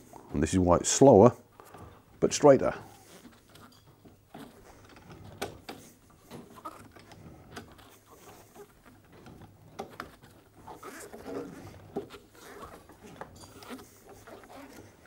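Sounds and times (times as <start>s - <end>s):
pipe cutter clicking and scraping: 3.1s - 15.0s.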